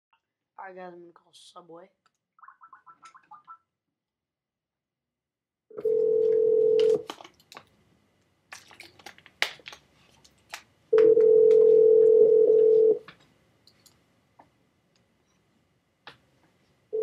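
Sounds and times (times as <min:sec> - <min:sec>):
telephone ringback tone: 0:05.8 - 0:07.0, 0:11.0 - 0:13.0.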